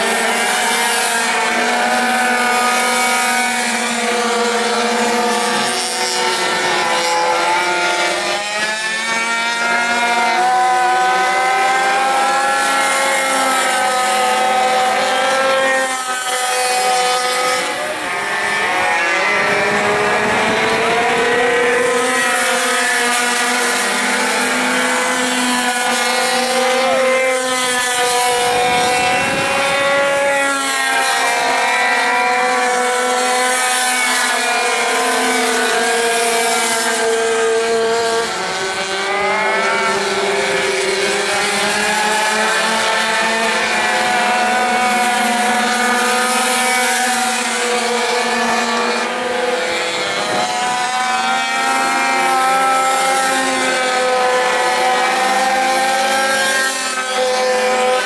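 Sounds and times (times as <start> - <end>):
minibike engines whining: 0.0 - 35.9.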